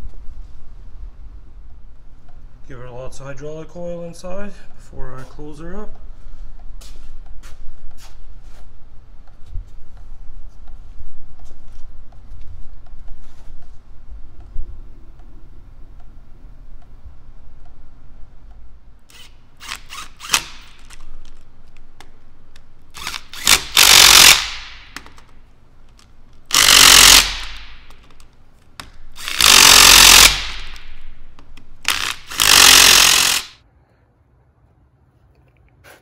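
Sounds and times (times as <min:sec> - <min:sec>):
impact wrench hammering: 0:19.1 - 0:20.9, 0:23.0 - 0:25.3, 0:26.5 - 0:28.2, 0:28.8 - 0:33.6.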